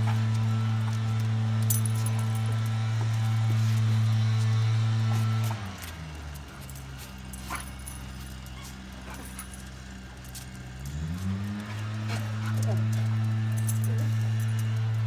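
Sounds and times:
dogs whining and whimpering: 0:06.7 - 0:09.7, 0:11.6 - 0:14.6.

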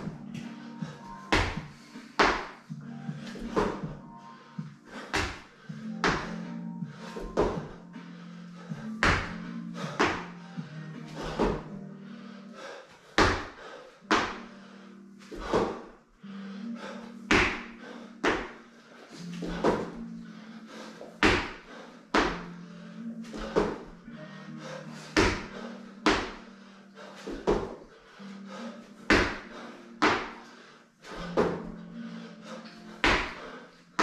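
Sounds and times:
thuds on rubber gym flooring: 0:01.3 - 0:02.6, 0:03.3 - 0:04.0, 0:05.2 - 0:06.3, 0:07.2 - 0:07.8, 0:09.0 - 0:09.4, 0:10.0 - 0:10.3, 0:11.2 - 0:11.7, 0:13.2 - 0:14.4, 0:15.4 - 0:15.9, 0:17.3 - 0:18.5, 0:21.2 - 0:21.6, 0:23.4 - 0:23.9, 0:25.2 - 0:26.4, 0:27.3 - 0:27.8, 0:29.1 - 0:30.4, 0:31.2 - 0:31.7, 0:33.0 - 0:33.4.

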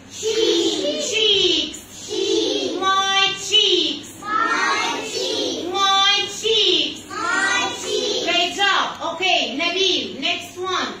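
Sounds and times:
children singing together: 0:04.2 - 0:06.0, 0:07.1 - 0:08.3.

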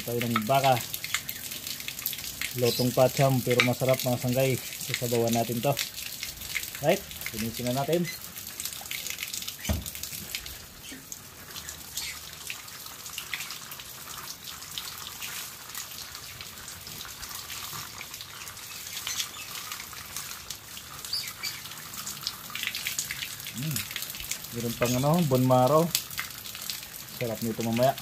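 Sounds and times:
running water splashing: 0:00.0 - 0:28.0
thump: 0:09.7 - 0:09.9.

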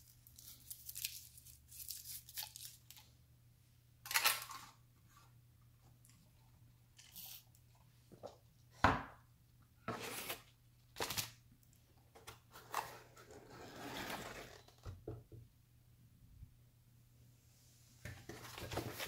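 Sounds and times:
cardboard and paper scraping: 0:12.5 - 0:14.7.

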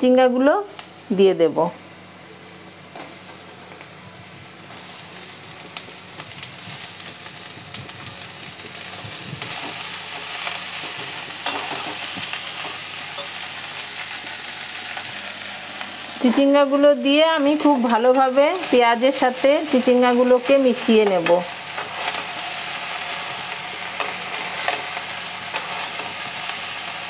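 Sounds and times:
oil and onions sizzling in a wok: 0:00.0 - 0:27.0
metal spatula stirring: 0:25.5 - 0:26.2.

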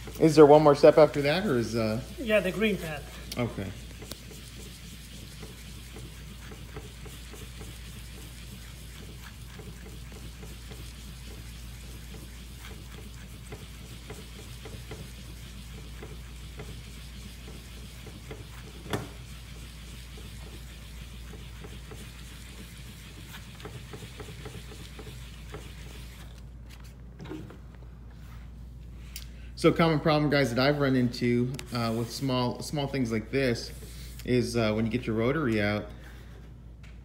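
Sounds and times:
sponge pad scrubbing wet tile: 0:00.0 - 0:26.4.

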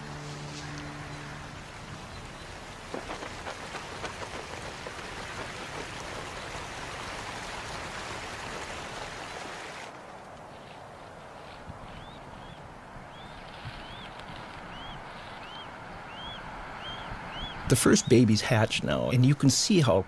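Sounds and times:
held music chord: 0:00.0 - 0:02.5
running splashing water: 0:00.2 - 0:09.9.

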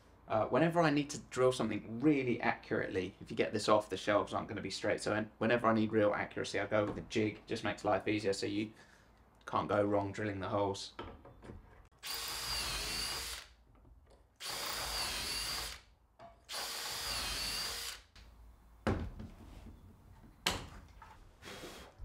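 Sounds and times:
cordless drill boring into wood: 0:12.0 - 0:13.6, 0:14.4 - 0:15.9, 0:16.5 - 0:18.1.

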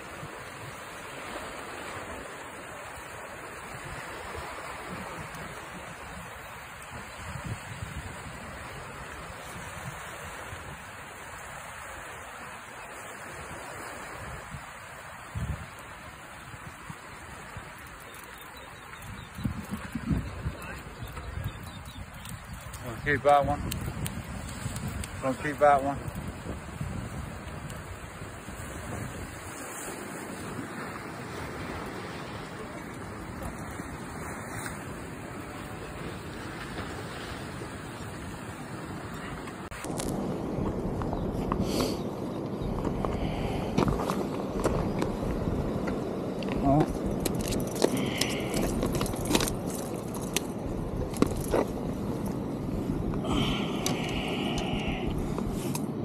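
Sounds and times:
wind buffeting microphone: 0:00.0 - 0:12.5, 0:13.2 - 0:56.0
waves washing against rocks: 0:00.0 - 0:56.0.

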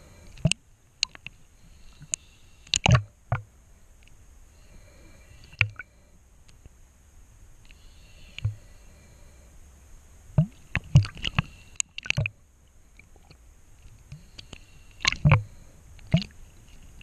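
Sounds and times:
underwater knocks and clicks: 0:02.8 - 0:03.5, 0:10.4 - 0:12.3, 0:15.0 - 0:15.5.

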